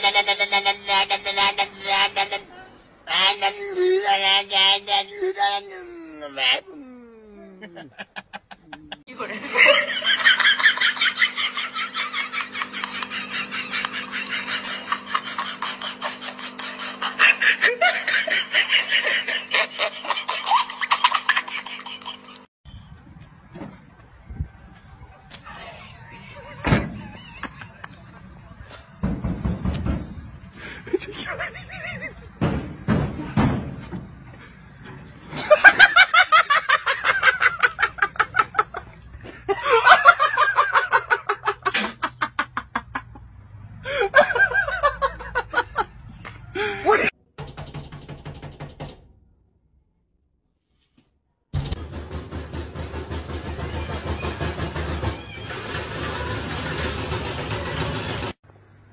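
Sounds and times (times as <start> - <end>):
person laughing: 0.0 - 22.4, 25.5 - 28.8, 30.6 - 32.4, 35.3 - 43.2, 43.8 - 47.2.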